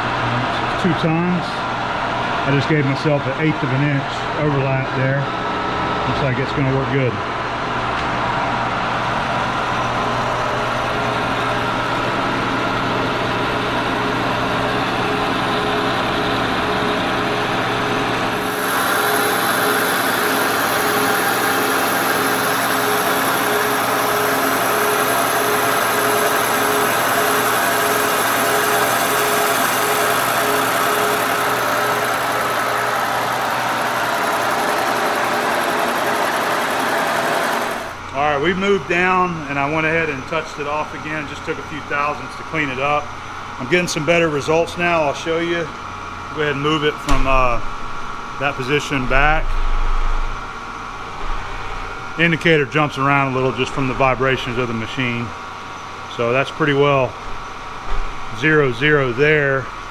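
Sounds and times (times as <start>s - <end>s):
milling machine running: 9.2s - 38.9s.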